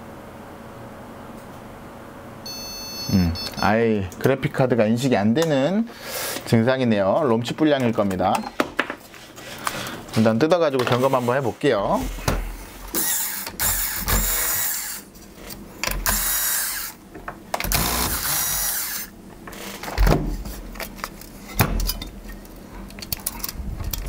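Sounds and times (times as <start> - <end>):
electric screwdriver running: 13.0 - 15.0, 16.0 - 17.0, 17.6 - 19.1.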